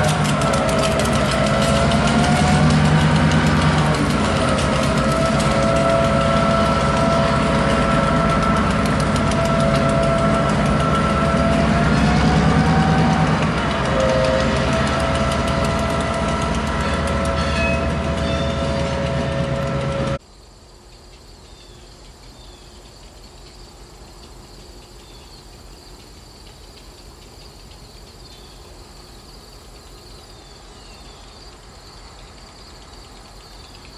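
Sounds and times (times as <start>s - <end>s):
squealing metal: 0.0s - 20.2s
faint low locomotive hum: 0.0s - 33.9s
train rumbling past: 0.0s - 33.9s
insects chirping: 20.2s - 33.9s.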